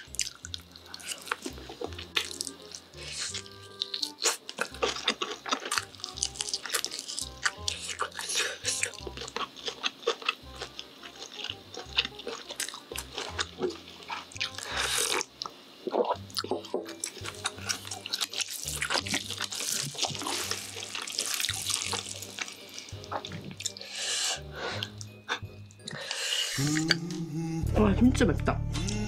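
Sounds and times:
chewing and mouth clicks: 0.0s - 23.9s
quiet background music: 0.0s - 29.0s
noodle slurping: 17.0s - 25.0s.

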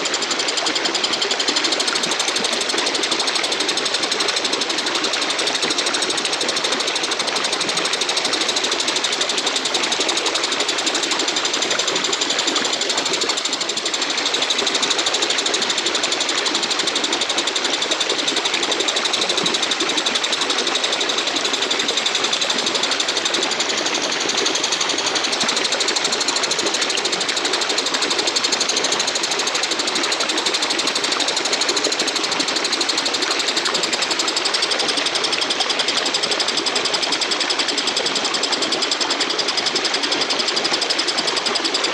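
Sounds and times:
katydid rasping chirr: 14.2s - 32.5s.

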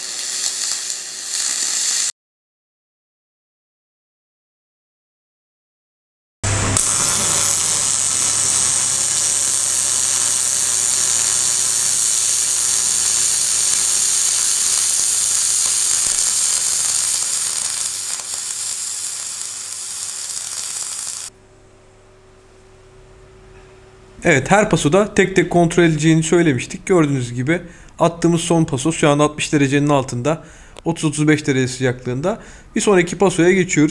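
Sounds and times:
welding arc hissing: 0.0s - 2.1s, 6.5s - 21.4s.

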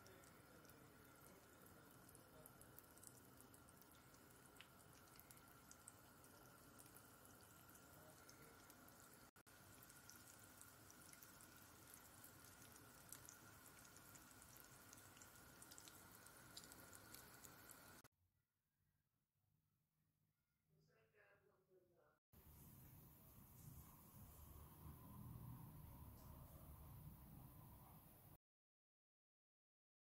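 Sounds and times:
hot oil sizzling and popping: 0.0s - 18.1s.

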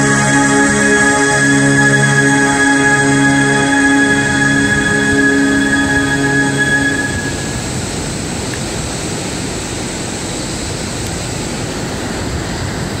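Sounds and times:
music with held notes: 0.0s - 7.7s.

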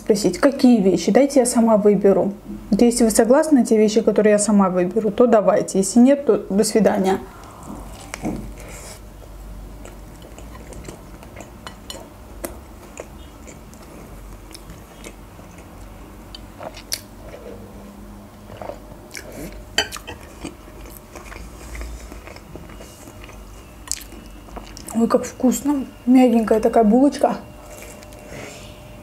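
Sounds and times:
chewing and mouth clicks: 9.8s - 17.4s, 18.5s - 25.0s.

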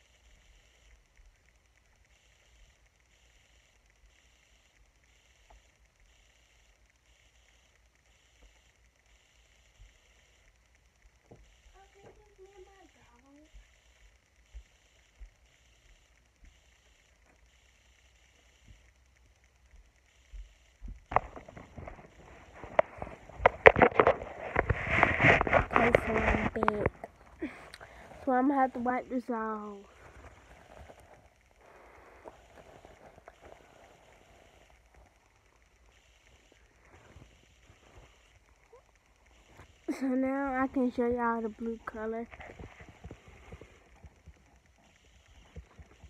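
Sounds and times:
faint pulsing high hiss: 0.0s - 46.0s
phone being handled: 21.1s - 27.4s.

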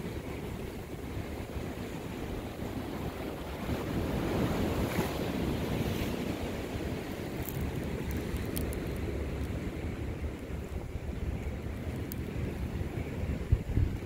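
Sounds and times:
ocean waves washing: 0.0s - 14.0s
wind buffeting microphone: 0.0s - 14.0s
faint clicks: 7.4s - 9.6s, 11.6s - 12.7s.

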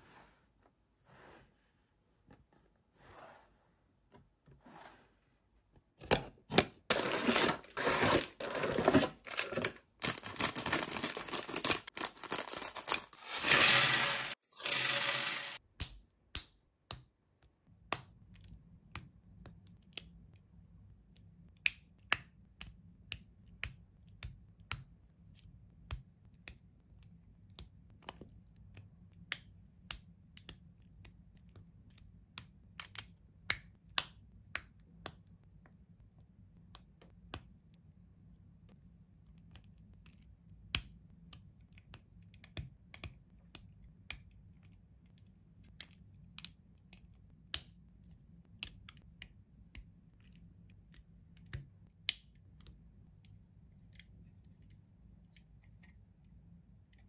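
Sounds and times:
handling rustling and clattering: 6.9s - 15.6s.

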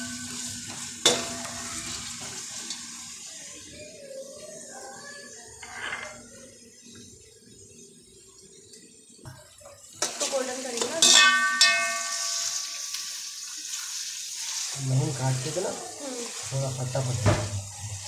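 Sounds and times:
metal pot ringing: 0.0s - 2.0s, 10.9s - 13.4s
onions sizzling in oil: 0.0s - 18.0s.

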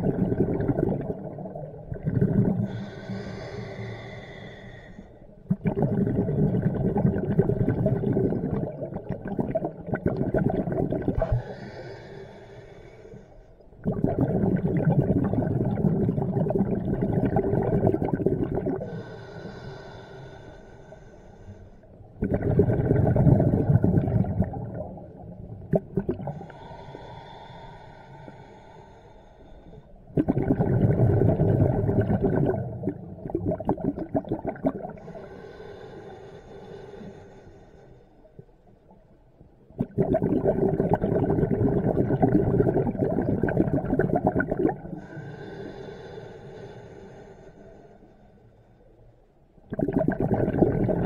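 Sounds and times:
diver exhaling bubbles: 0.0s - 4.0s, 5.5s - 11.9s, 13.8s - 19.2s, 22.2s - 27.6s, 30.2s - 35.8s, 39.8s - 46.1s, 49.7s - 51.0s.

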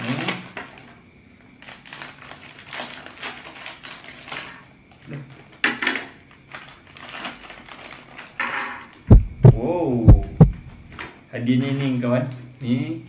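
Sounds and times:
scissors cutting plastic: 1.6s - 5.9s, 6.5s - 9.0s
plastic wrapper crinkling: 1.6s - 9.0s.

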